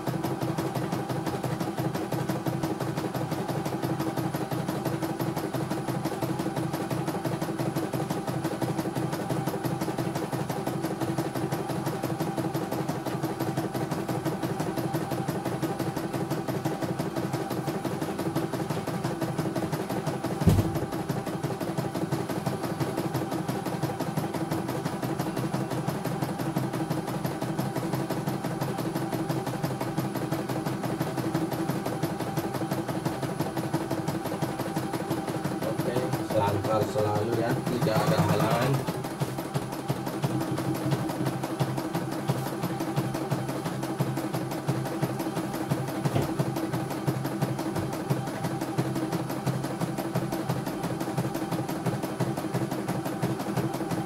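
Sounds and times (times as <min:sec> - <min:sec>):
embroidery machine stitching: 0:00.0 - 0:54.0
sharp knock: 0:20.4 - 0:20.9.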